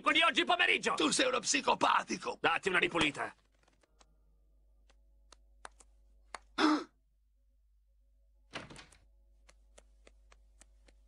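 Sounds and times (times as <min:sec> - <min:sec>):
cartoon footsteps tapping: 0:08.6 - 0:11.0.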